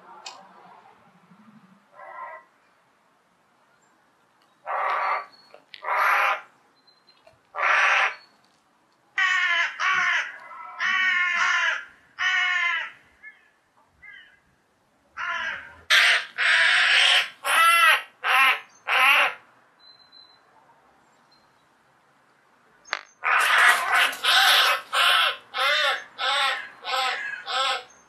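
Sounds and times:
crow cawing harshly: 0:04.7 - 0:06.4, 0:07.6 - 0:08.2, 0:09.2 - 0:13.4, 0:15.2 - 0:19.4, 0:23.2 - 0:27.9.

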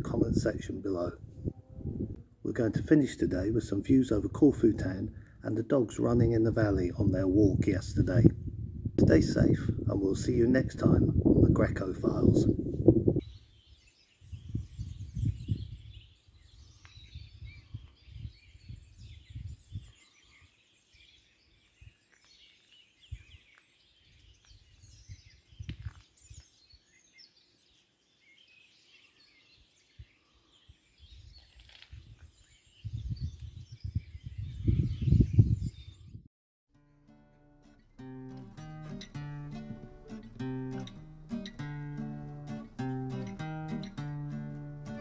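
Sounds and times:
wind buffeting microphone: 0:00.0 - 0:20.2, 0:23.0 - 0:26.5, 0:29.8 - 0:36.3
small birds chirping: 0:13.2 - 0:36.3.

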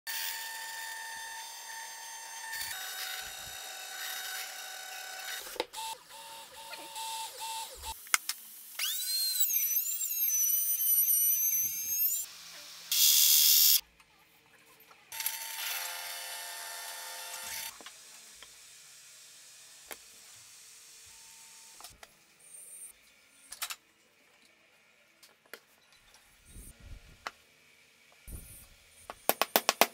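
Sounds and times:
electric router whining: 0:00.1 - 0:07.9.

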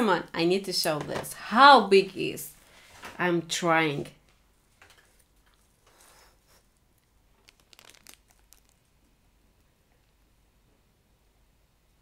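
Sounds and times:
packaging rustling and crinkling: 0:07.0 - 0:08.9.

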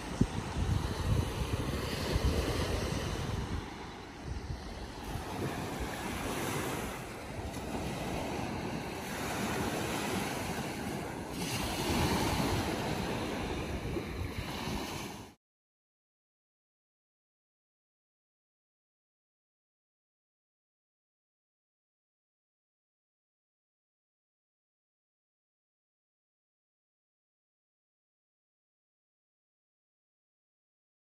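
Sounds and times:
wind buffeting microphone: 0:00.0 - 0:15.2
waves washing up sandy shore: 0:00.0 - 0:15.4.

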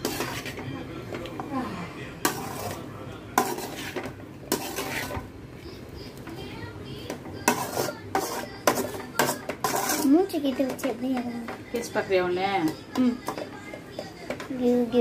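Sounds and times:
metal spatula scraping a metal pan: 0:00.0 - 0:00.7, 0:02.2 - 0:05.3, 0:07.4 - 0:11.0.

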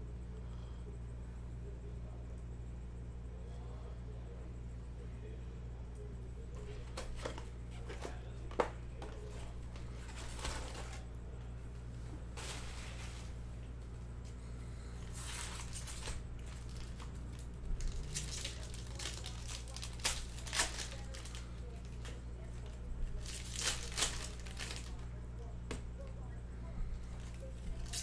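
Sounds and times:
steady low hum: 0:00.0 - 0:28.0
plastic wrap crinkling and tearing: 0:09.2 - 0:11.0, 0:15.0 - 0:25.1, 0:27.2 - 0:28.0.

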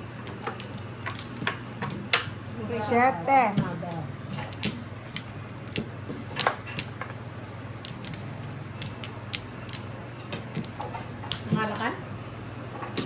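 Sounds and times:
mahjong tiles clicking: 0:00.2 - 0:02.3, 0:07.8 - 0:11.5.

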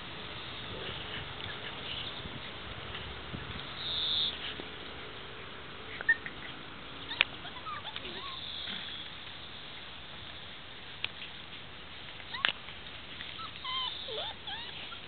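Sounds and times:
steady outdoor hiss: 0:00.0 - 0:15.0
puppy whimpers: 0:05.9 - 0:08.9, 0:12.3 - 0:12.5, 0:13.3 - 0:15.0
puppies squeaking and yipping: 0:05.9 - 0:09.1, 0:12.2 - 0:12.6, 0:13.2 - 0:15.0.

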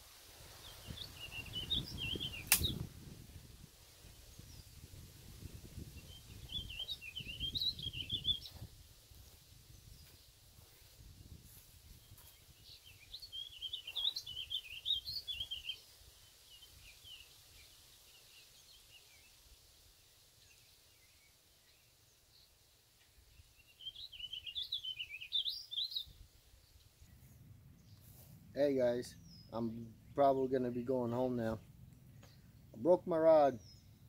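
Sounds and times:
songbird warbling: 0:00.6 - 0:02.8, 0:06.0 - 0:08.6, 0:12.6 - 0:19.3, 0:23.6 - 0:27.2
faint low rumble: 0:26.6 - 0:30.2.

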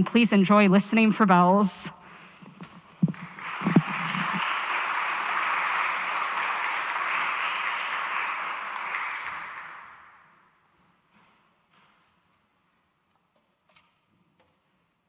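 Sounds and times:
audience applauding: 0:03.0 - 0:10.4.

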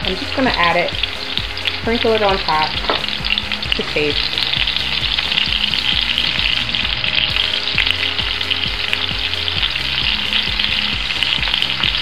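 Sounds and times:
food sizzling in hot oil: 0:00.0 - 0:12.0.

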